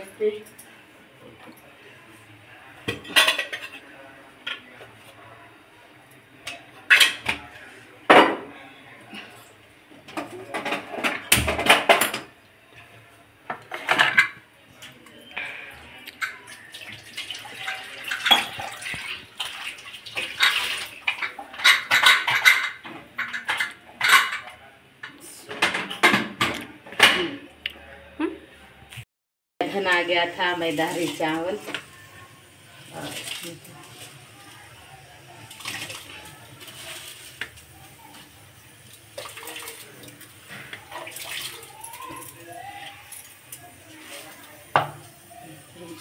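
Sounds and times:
pots and utensils clinking: 0:02.8 - 0:04.8, 0:06.4 - 0:08.5, 0:10.0 - 0:12.4, 0:13.5 - 0:15.1, 0:16.1 - 0:27.4, 0:32.9 - 0:46.0
tap water running and splashing: 0:16.2 - 0:22.6, 0:30.5 - 0:46.0
water splashing: 0:38.8 - 0:43.1.

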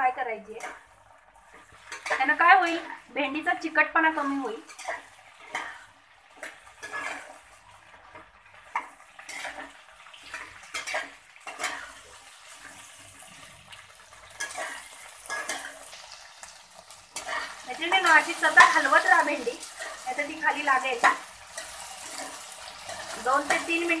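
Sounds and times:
okra frying in oil: 0:00.0 - 0:24.0
metal spoon scraping a pan: 0:01.5 - 0:03.0, 0:04.2 - 0:07.5, 0:08.2 - 0:13.0, 0:14.3 - 0:16.1, 0:17.0 - 0:24.0.

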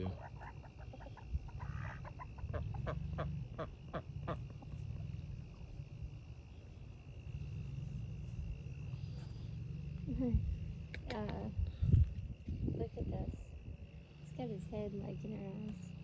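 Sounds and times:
short animal calls: 0:00.0 - 0:04.4.

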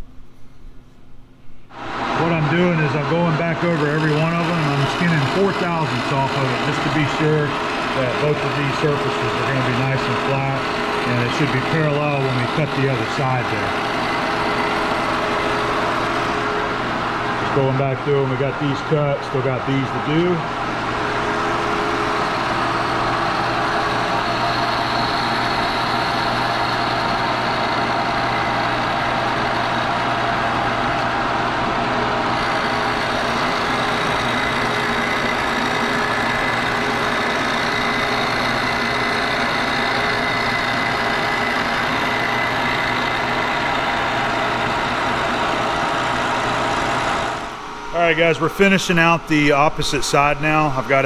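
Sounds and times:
milling machine cutting metal: 0:01.8 - 0:51.0.

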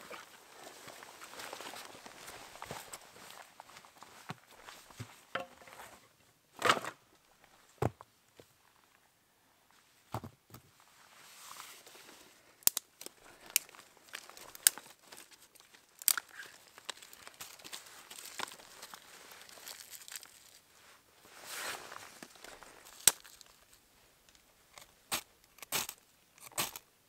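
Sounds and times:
knocks of firewood set down: 0:05.0 - 0:06.0, 0:06.6 - 0:07.0
crinkling: 0:11.5 - 0:26.9
rustling on leaf litter: 0:13.0 - 0:23.8.

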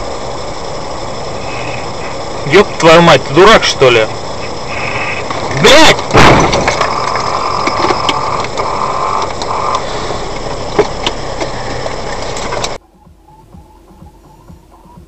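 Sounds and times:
engine and road noise: 0:00.0 - 0:15.0
high steady tone: 0:00.0 - 0:15.0
car collision impact: 0:05.3 - 0:08.0.

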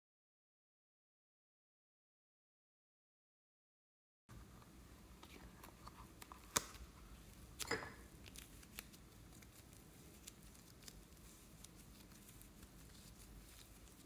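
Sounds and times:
hands stretching clay: 0:05.2 - 0:14.0.

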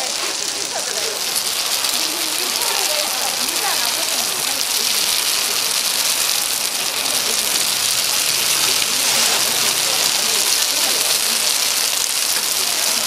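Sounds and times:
dumplings sizzling in oil: 0:00.0 - 0:13.0.

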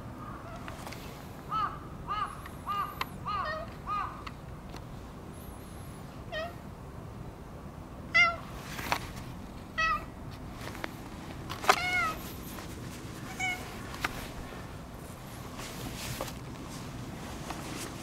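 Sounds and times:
cat meowing: 0:09.8 - 0:10.1, 0:11.8 - 0:12.2, 0:13.2 - 0:13.9.

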